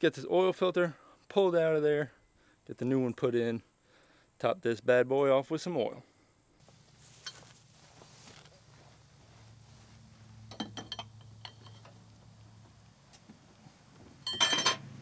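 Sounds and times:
faint clicks and clinks of parts: 0:07.1 - 0:07.6, 0:10.5 - 0:12.2, 0:14.2 - 0:14.8.

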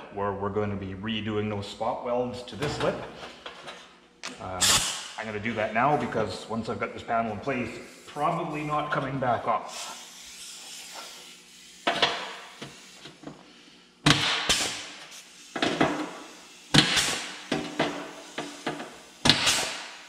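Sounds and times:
pneumatic punch clacking: 0:11.8 - 0:13.3, 0:14.0 - 0:20.0.

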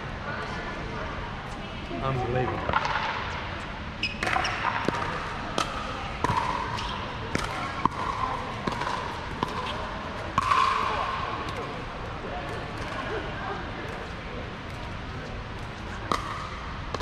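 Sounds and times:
ball bouncing on hard court: 0:02.6 - 0:03.4, 0:04.0 - 0:11.8, 0:15.6 - 0:17.0
pickleball striking paddles: 0:02.7 - 0:03.2, 0:04.2 - 0:11.8, 0:15.6 - 0:17.0.

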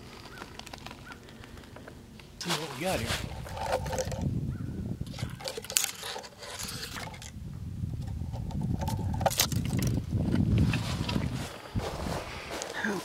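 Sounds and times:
footsteps on dry leaves: 0:02.4 - 0:03.5, 0:10.6 - 0:13.0
brush scraping and rustling: 0:02.4 - 0:04.3, 0:05.1 - 0:07.3, 0:08.0 - 0:13.0
twigs snapping: 0:08.8 - 0:10.0.

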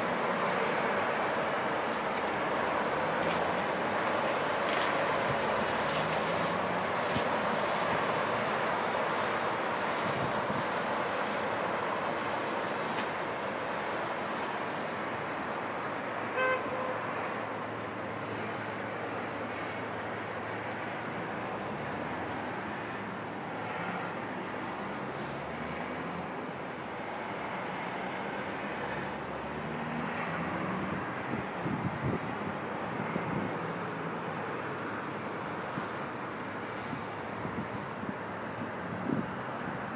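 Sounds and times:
distant city traffic: 0:00.0 - 0:39.9
car horn toot: 0:16.3 - 0:17.0.

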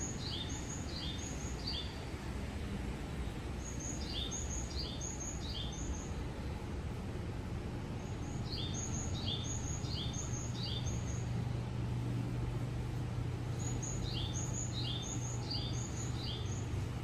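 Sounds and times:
steady low hum: 0:00.0 - 0:17.0
high bird-like chirps: 0:08.0 - 0:11.3, 0:13.5 - 0:16.7.

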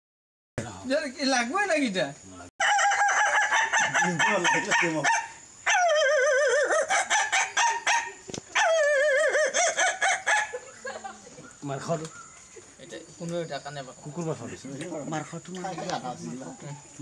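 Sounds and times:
man imitating rooster crows: 0:02.6 - 0:07.3, 0:08.6 - 0:10.4
man imitating clucking chicken: 0:05.7 - 0:07.3.

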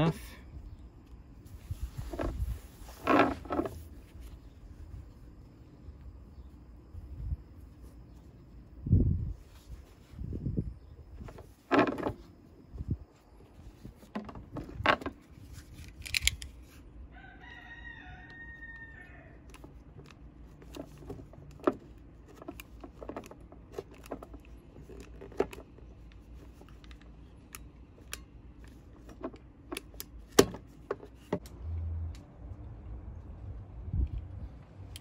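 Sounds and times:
rooster crowing: 0:17.1 - 0:19.5.

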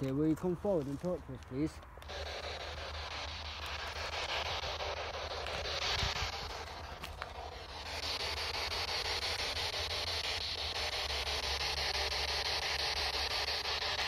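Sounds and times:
chopped radio static hiss: 0:00.0 - 0:14.0.

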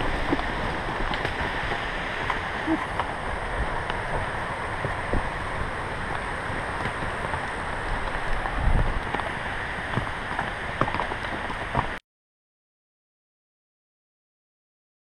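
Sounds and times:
wind rushing on microphone: 0:00.0 - 0:12.0.

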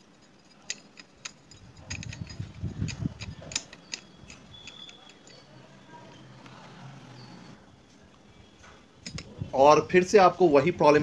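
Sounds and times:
light metallic clicks: 0:00.4 - 0:05.6.

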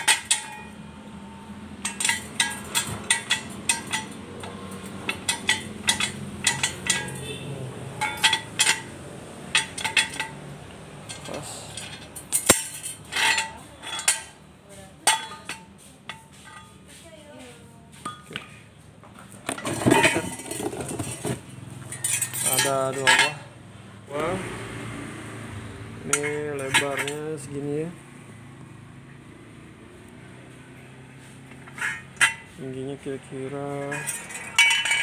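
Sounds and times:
jack stand ratchet clanking: 0:01.8 - 0:07.4.

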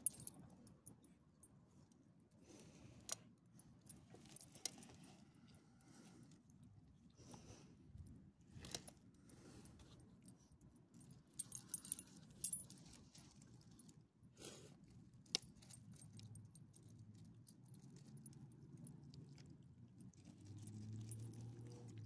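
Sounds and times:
dog collar tags jingling: 0:00.0 - 0:00.4, 0:11.4 - 0:12.9, 0:20.6 - 0:22.0.

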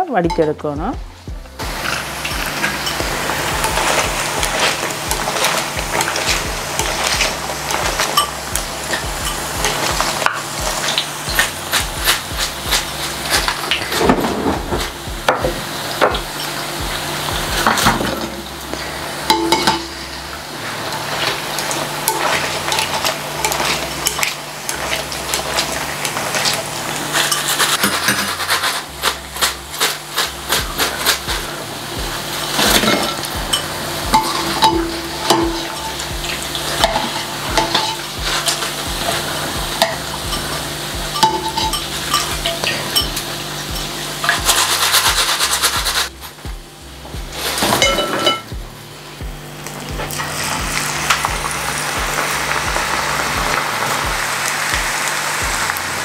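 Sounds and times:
food deep-frying in oil: 0:01.5 - 0:56.0
skimmer clinking against pan: 0:39.8 - 0:45.2.

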